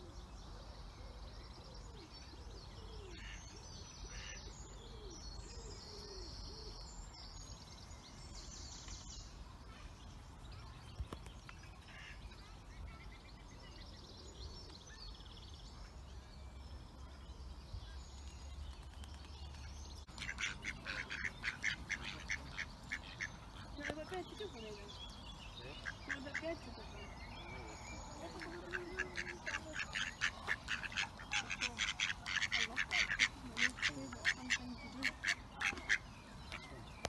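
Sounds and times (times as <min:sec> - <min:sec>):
small birds chirping: 0:00.0 - 0:37.0
ducks quacking: 0:20.2 - 0:24.4, 0:25.7 - 0:27.0, 0:28.2 - 0:36.1.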